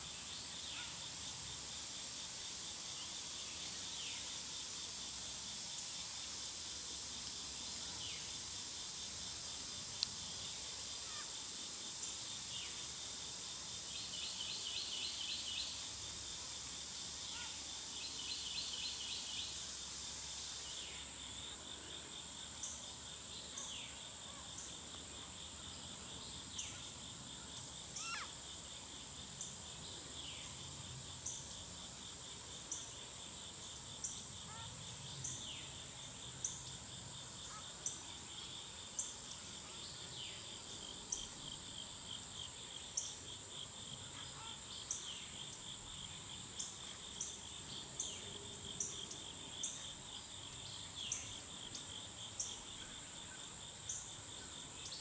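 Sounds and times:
insects buzzing: 0:00.0 - 0:55.0
insect pulsing trill: 0:26.6 - 0:28.4.

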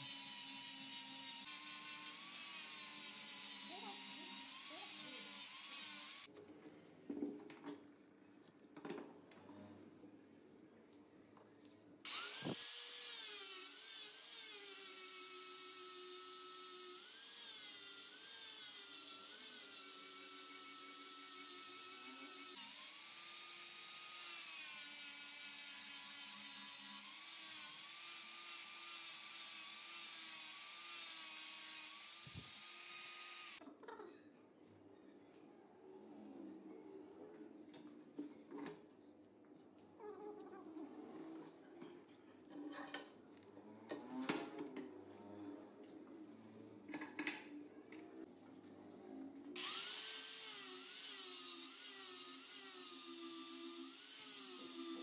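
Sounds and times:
angle grinder grinding steel: 0:00.0 - 0:06.3, 0:12.1 - 0:33.6, 0:49.6 - 0:55.0.

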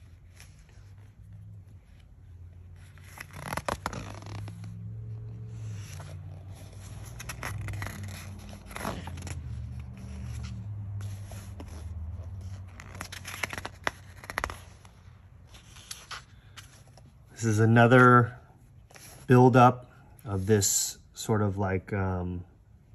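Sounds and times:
book pages turning: 0:00.0 - 0:17.3.

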